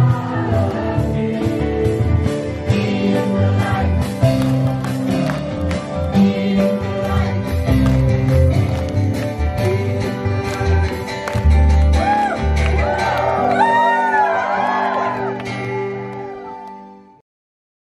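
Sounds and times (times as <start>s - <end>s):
young man singing: 0.0s - 8.2s, 9.4s - 12.0s
band playing worship song: 0.0s - 16.7s.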